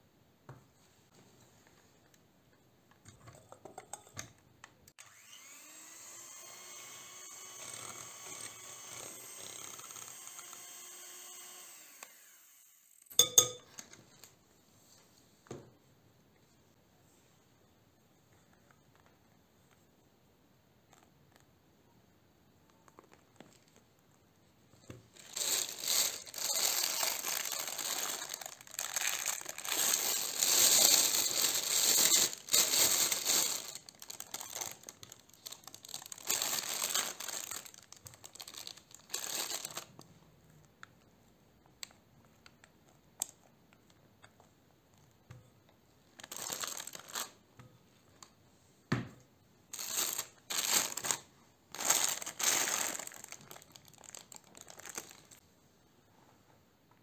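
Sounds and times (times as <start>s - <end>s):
plastic piping bag crinkling: 25.0s - 40.2s, 46.0s - 47.5s, 49.7s - 55.4s.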